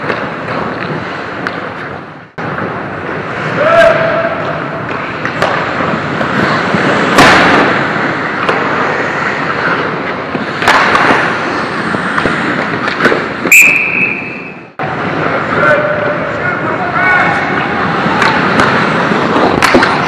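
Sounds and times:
sticks and puck knocking: 0.0s - 2.7s, 4.8s - 6.4s, 10.3s - 11.4s, 12.0s - 13.6s, 18.1s - 20.0s
skates scraping ice: 0.0s - 20.0s
referee's whistle: 13.5s - 14.7s.

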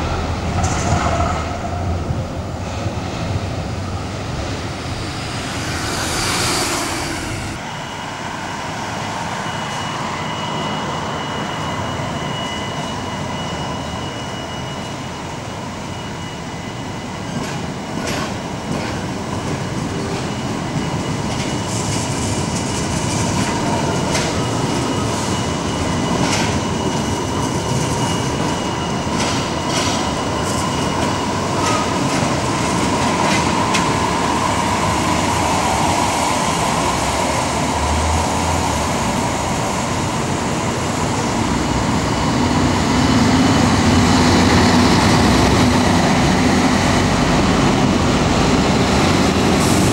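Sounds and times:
bus engine: 1.8s - 7.8s, 31.6s - 49.9s
tram wheels clicking over rail joints: 17.4s - 25.0s, 26.1s - 34.1s.

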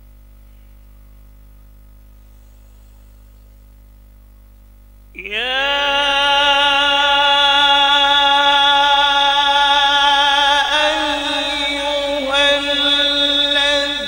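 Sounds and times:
man reciting melodically into microphone: 5.2s - 14.0s.

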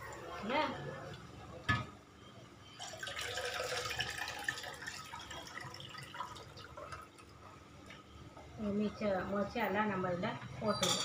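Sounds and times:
liquid pouring into pot: 2.8s - 7.3s.

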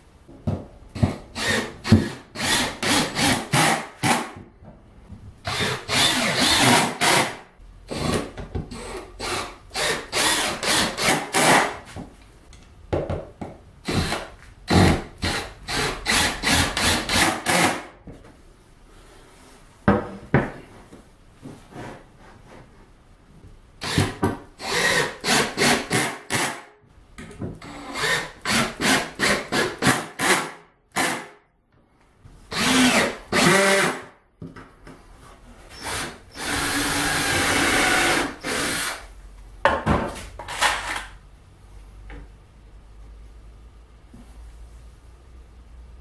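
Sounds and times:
cordless drill running: 32.5s - 33.9s, 35.8s - 39.0s.

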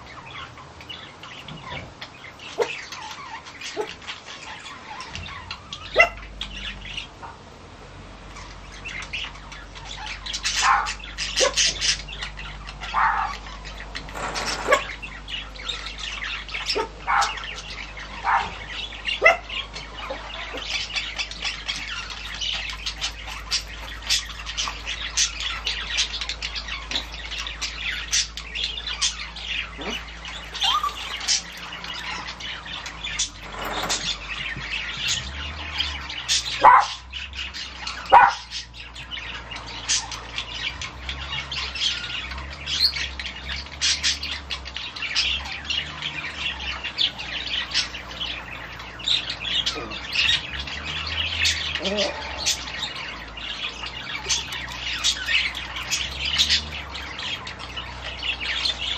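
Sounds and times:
small birds chirping: 0.0s - 58.9s.

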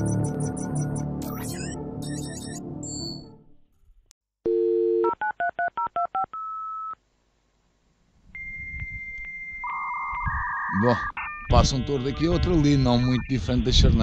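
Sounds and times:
music: 0.0s - 3.6s, 11.2s - 14.0s
steady beep: 8.4s - 14.0s
touch-tone keypad beeps: 8.4s - 14.0s.

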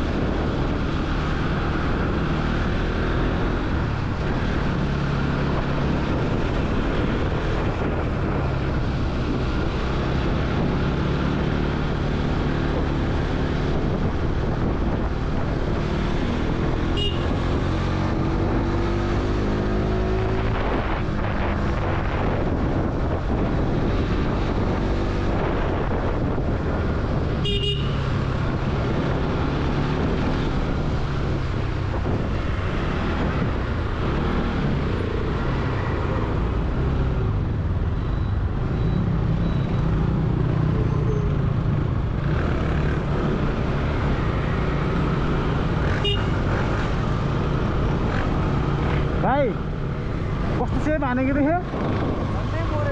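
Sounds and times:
traffic noise: 0.0s - 52.9s
wind: 0.0s - 52.9s
horn toots: 16.9s - 17.4s, 27.4s - 28.0s, 45.9s - 46.5s.

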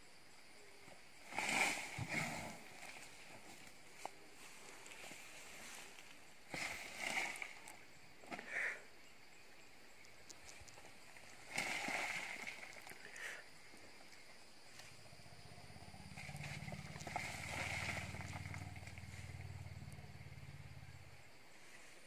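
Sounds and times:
low pulsing engine drone: 14.9s - 21.4s.

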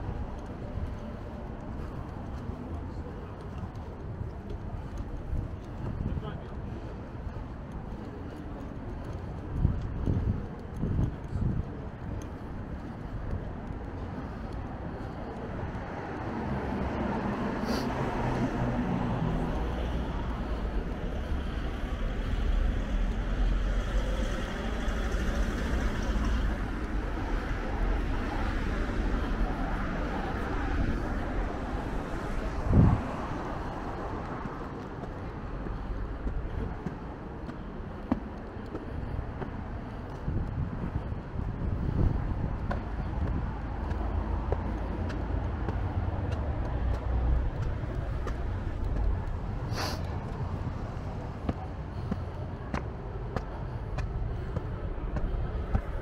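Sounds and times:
engine hum: 0.0s - 56.0s
cars driving past: 12.0s - 56.0s.

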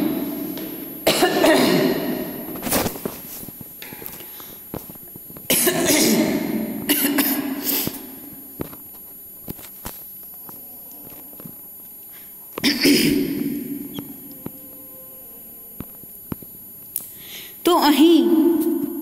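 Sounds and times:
person coughing: 1.0s - 2.3s, 5.5s - 8.0s, 12.6s - 13.4s.

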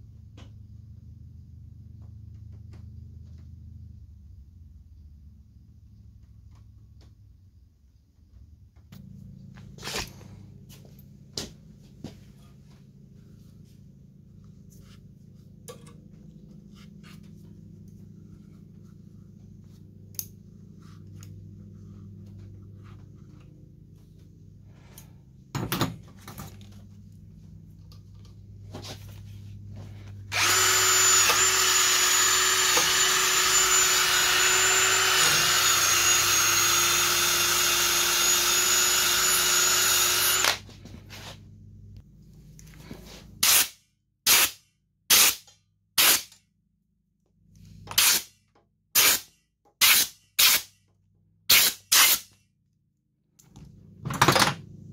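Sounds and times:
power tool whining: 30.3s - 40.7s.

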